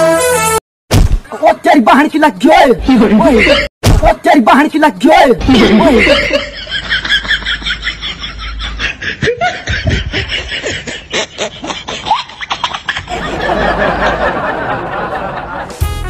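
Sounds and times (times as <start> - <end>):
snickering giggles: 8.5 - 13.2.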